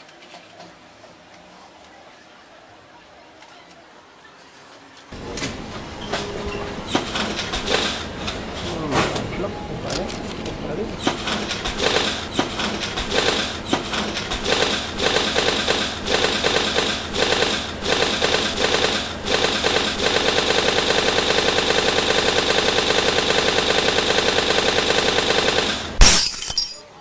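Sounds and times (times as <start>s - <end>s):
loud rapid rattling stutter: 6.9s - 8.1s, 11.0s - 26.0s.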